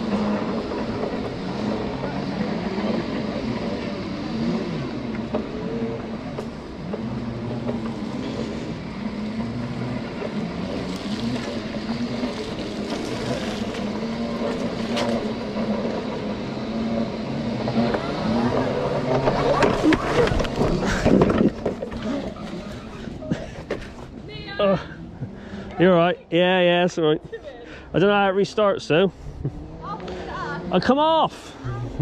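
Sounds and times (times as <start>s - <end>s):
electric drive whine: 0.0s - 23.9s
tyre and wind noise: 0.0s - 25.4s.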